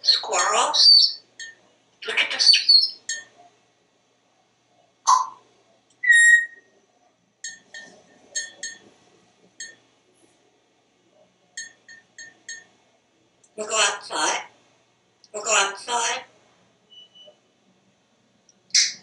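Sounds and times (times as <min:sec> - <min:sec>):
parrot calling: 0:00.0 - 0:01.2, 0:02.0 - 0:03.2, 0:05.1 - 0:05.4, 0:06.0 - 0:06.6
parrot beeping pips: 0:05.1 - 0:05.4, 0:06.0 - 0:06.6
parrot whistling: 0:06.0 - 0:06.7.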